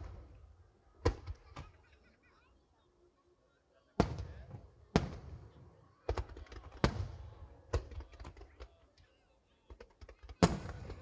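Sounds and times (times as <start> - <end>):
firework booms with echo: 4.0 - 5.5, 6.1 - 7.9, 10.4 - 11.0.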